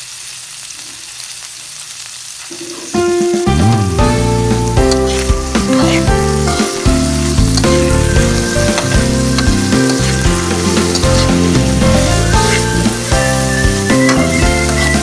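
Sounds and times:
vegetables sizzling in hot oil: 0.0s - 15.0s
background music: 3.0s - 15.0s
spatula turning food in pan: 4.2s - 15.0s.

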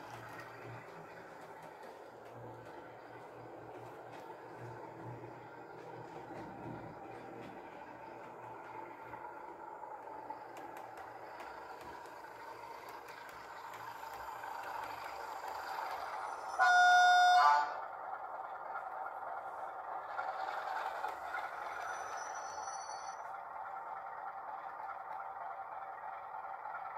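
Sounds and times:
diesel locomotive engine from speaker: 0.0s - 26.9s
locomotive horn blast: 16.5s - 17.8s.

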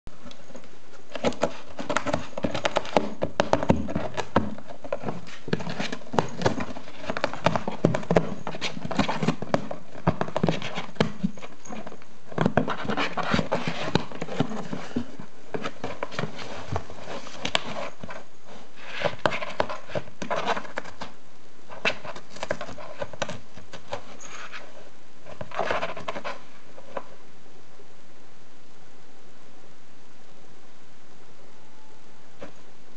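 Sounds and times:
cat tearing cardboard: 1.1s - 18.1s, 18.8s - 21.1s.

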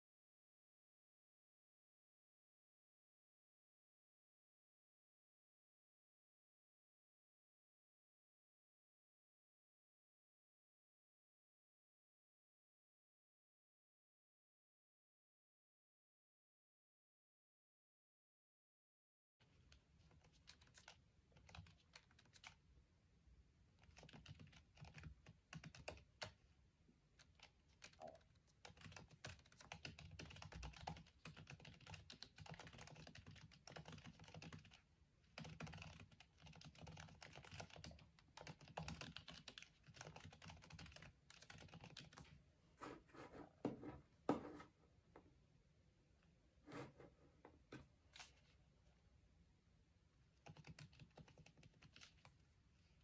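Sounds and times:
laptop keyboard typing: 19.7s - 22.6s, 23.8s - 26.4s, 27.2s - 42.3s, 50.4s - 52.4s.

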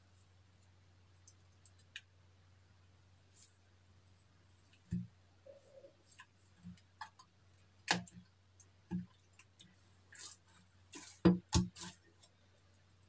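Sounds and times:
slime kneaded by hand: 8.9s - 12.4s.

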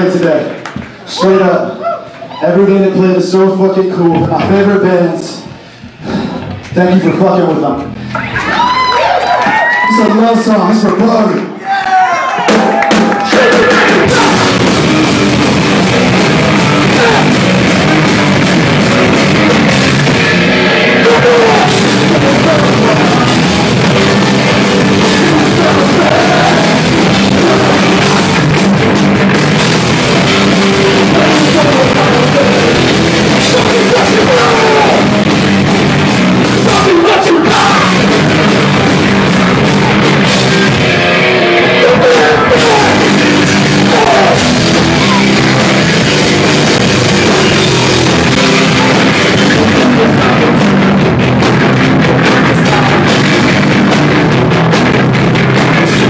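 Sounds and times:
hardcore punk band playing live: 12.4s - 56.0s.

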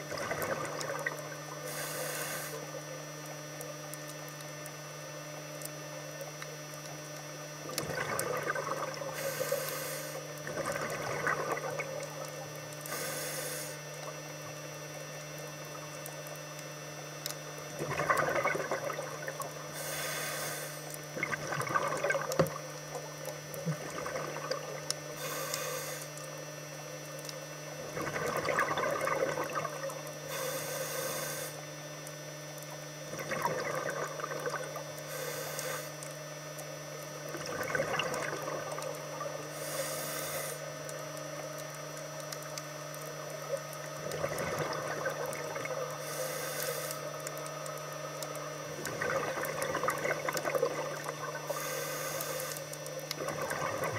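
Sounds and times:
exhaled bubbles gurgling: 0.0s - 53.9s
steady low hum: 0.0s - 53.9s
regulator hissing inhale: 1.6s - 2.8s, 9.1s - 10.3s, 12.8s - 13.9s, 19.7s - 21.0s, 25.2s - 26.2s, 30.3s - 31.6s, 35.0s - 36.0s, 39.5s - 40.7s, 46.0s - 47.1s, 51.4s - 52.7s.

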